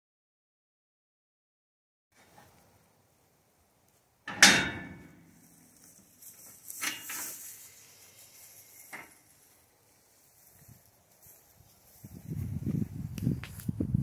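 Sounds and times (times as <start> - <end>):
metal gate clanking: 4.2 - 5.6, 6.8 - 7.3.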